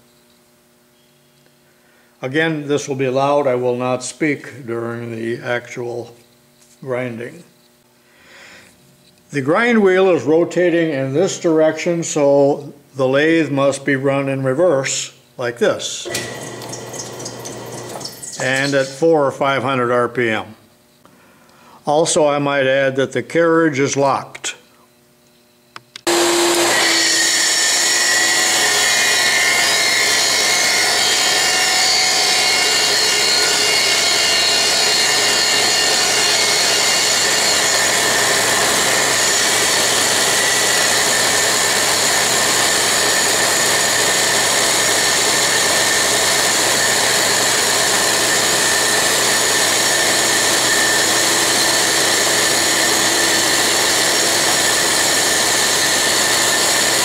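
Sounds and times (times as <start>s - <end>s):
shop vacuum: 15.9s - 19.8s, 26.0s - 57.0s
toolpost grinder high whine: 16.0s - 19.9s, 26.0s - 57.0s.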